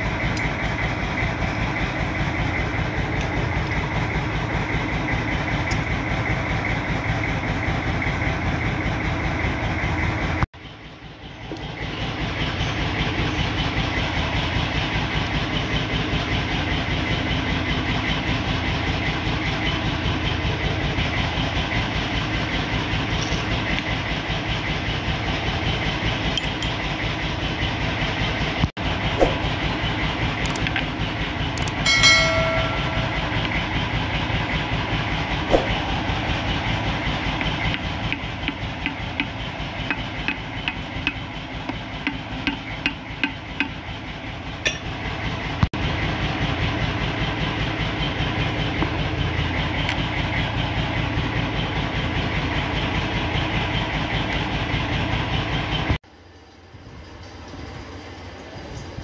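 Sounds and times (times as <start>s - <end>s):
machinery pulsing: 11.0s - 56.0s
short pitched note: 31.9s - 33.8s.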